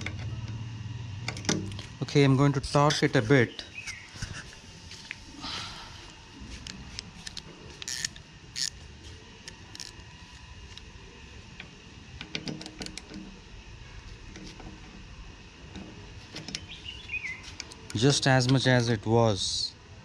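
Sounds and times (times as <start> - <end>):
ratchet clicking: 7.2 - 8.8, 9.4 - 10.0.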